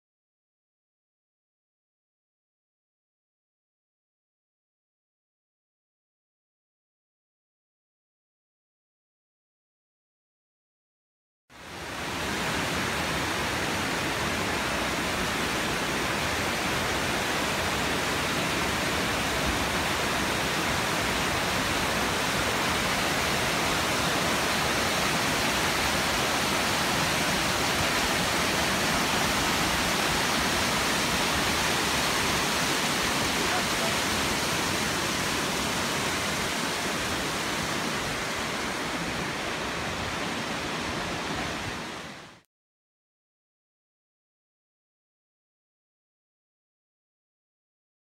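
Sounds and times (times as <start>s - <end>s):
creek water rushing over rocks: 11.6s - 42.4s.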